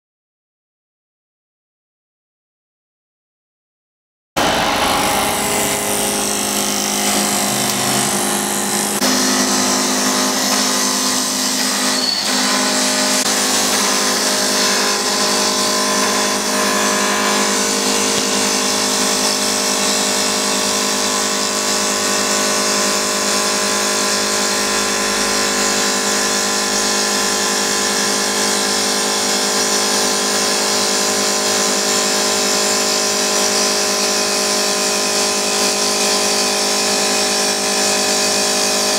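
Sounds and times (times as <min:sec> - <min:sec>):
cutter hissing through wood: 0:04.4 - 0:30.4
lathe motor whine: 0:04.4 - 0:38.9.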